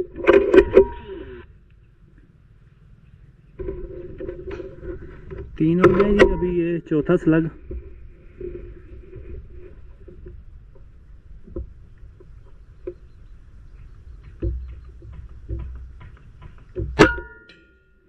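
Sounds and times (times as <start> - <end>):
short ringing tone: 0.6 - 1.4
faint knocks: 10.0 - 17.1.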